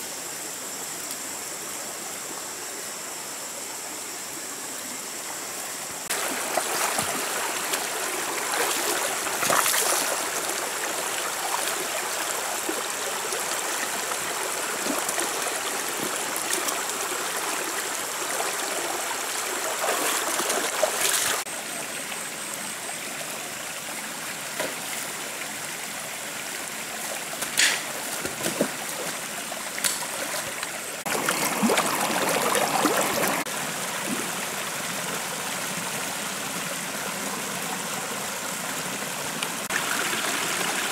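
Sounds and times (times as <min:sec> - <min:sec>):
stream running over stones: 0:03.2 - 0:40.9
feet splashing through water: 0:06.1 - 0:10.4, 0:19.6 - 0:21.4, 0:27.0 - 0:33.4.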